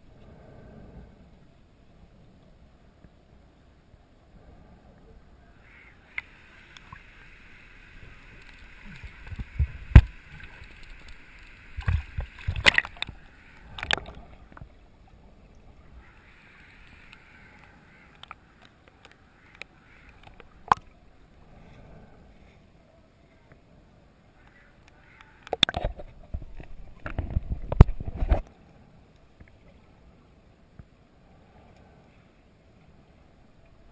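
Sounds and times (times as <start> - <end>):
steady hiss: 0.0 - 25.5
underwater water movement: 4.3 - 22.6, 24.4 - 30.1
sharp underwater knocks: 8.9 - 10.8, 11.8 - 13.2.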